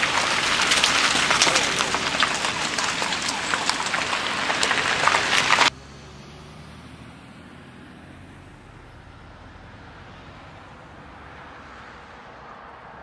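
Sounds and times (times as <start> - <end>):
traffic hiss: 0.0 - 5.7
car engine hum: 0.0 - 11.5
road noise: 0.0 - 13.0.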